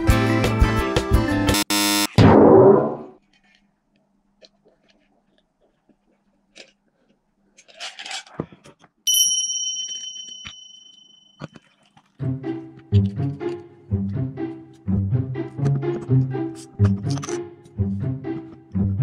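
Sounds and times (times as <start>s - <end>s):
loud hit: 2.2s - 3.1s
bell-like ding: 9.1s - 11.4s.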